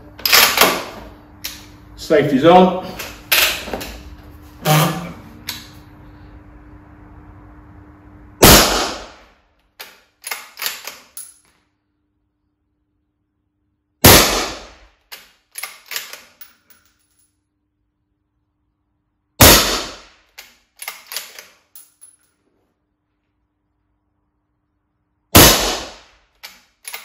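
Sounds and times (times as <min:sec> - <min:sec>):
suppressed rifle shots: 0:08.4 - 0:09.2, 0:14.0 - 0:14.8, 0:19.4 - 0:20.1, 0:25.4 - 0:26.1
rifle bolt metallic clicks: 0:20.4 - 0:21.9.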